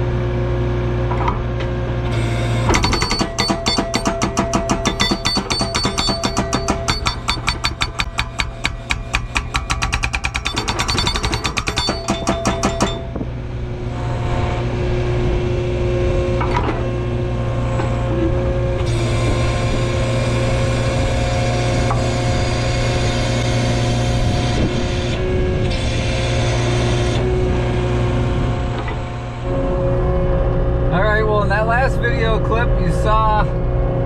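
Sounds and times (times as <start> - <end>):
engine running with hydraulic whine: 0.0 - 34.0
hydraulic breaker hammer pounding: 2.1 - 13.4.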